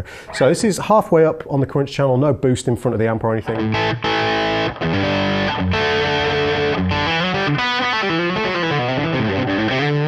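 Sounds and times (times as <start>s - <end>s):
overdriven electric guitar chords: 3.6s - 10.0s.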